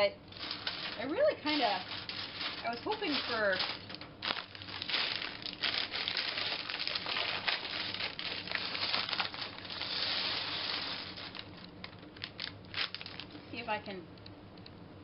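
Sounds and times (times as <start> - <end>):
plastic bag crinkling: 0.2 - 13.5
plastic bricks rattling and clattering: 0.3 - 11.5.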